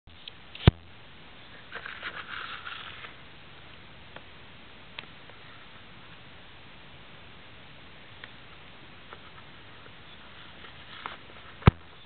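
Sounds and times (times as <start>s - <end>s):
steady hiss: 0.1s - 12.0s
handling rustling and scraping: 1.4s - 3.2s, 9.1s - 12.0s.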